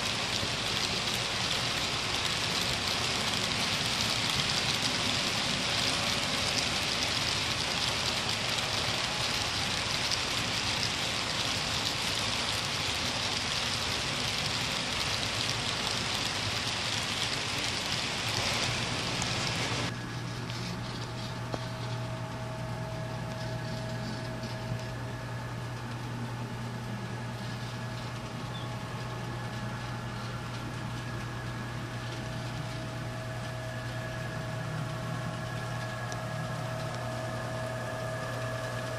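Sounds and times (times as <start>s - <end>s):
model train wheels hissing on rails: 0.0s - 24.9s
low hum: 0.0s - 38.9s.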